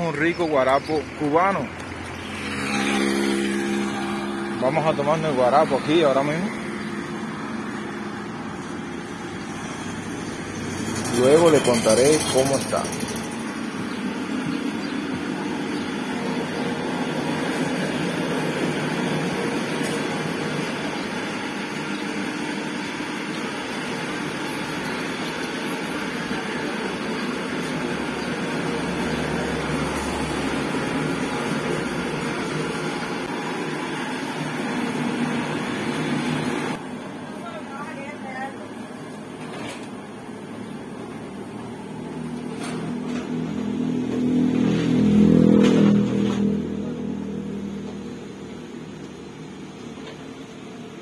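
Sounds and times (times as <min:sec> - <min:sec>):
electric sugarcane press running: 0:00.0 - 0:51.0.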